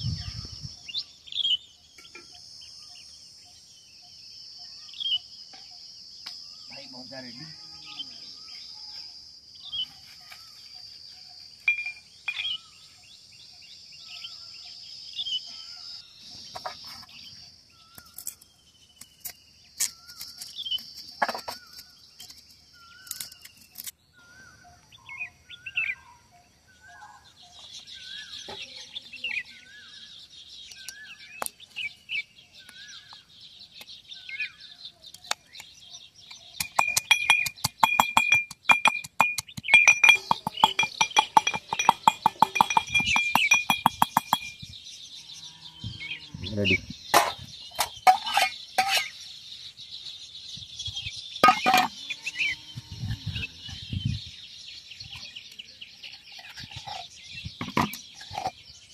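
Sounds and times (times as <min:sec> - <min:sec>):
insect drone: 0:00.0 - 0:28.3
birds chirping: 0:00.0 - 0:58.9.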